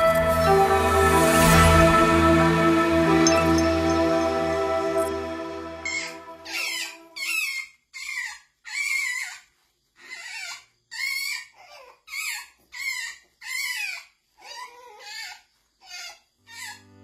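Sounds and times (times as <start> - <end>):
badger cubs squealing: 5.9 - 9.4, 10.0 - 16.8.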